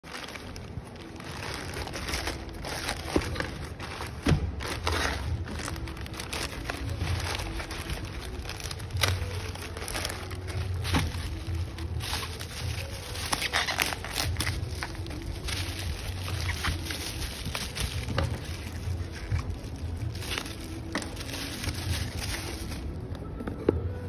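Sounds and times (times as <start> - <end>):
plastic bag crinkling: 0.0 - 23.4.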